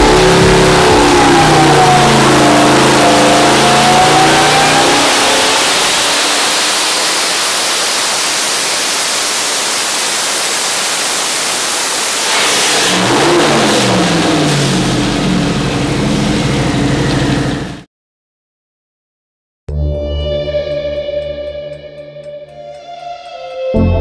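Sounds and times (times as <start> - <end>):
car engine at high revs: 0.0 - 17.8.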